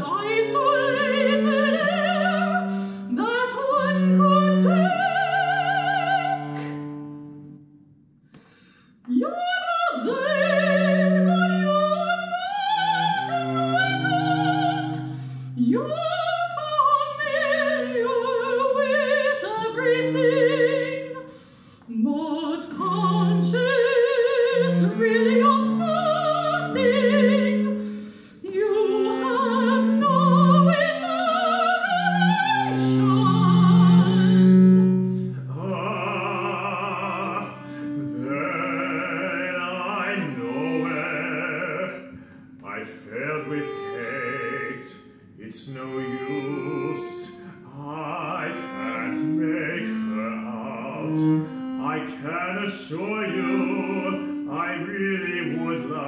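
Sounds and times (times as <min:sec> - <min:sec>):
soprano singing operatic line: 0:00.0 - 0:06.9, 0:09.1 - 0:21.3, 0:21.9 - 0:56.0
low cello notes: 0:00.0 - 0:07.7, 0:09.1 - 0:21.3, 0:21.9 - 0:56.0.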